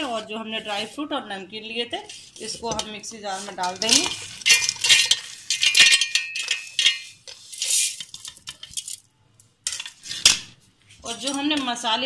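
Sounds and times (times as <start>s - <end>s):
nuts rattling into steel jar: 3.6s - 9.1s.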